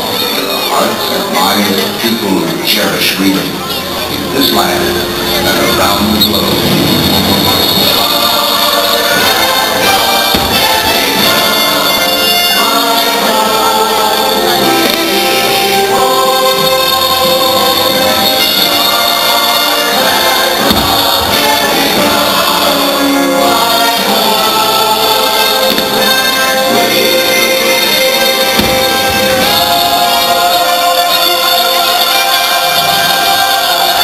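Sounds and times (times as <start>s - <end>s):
choir singing with accompaniment: 0.0s - 34.0s
dull firework bang: 10.3s - 11.3s, 20.6s - 21.4s, 28.6s - 29.6s.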